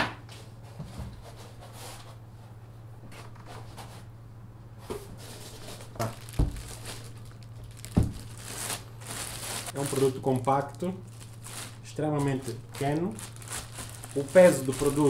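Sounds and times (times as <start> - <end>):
steady low hum: 0.0 - 15.0
plastic wrap crinkling: 5.4 - 15.0
dull thumps: 7.8 - 8.4.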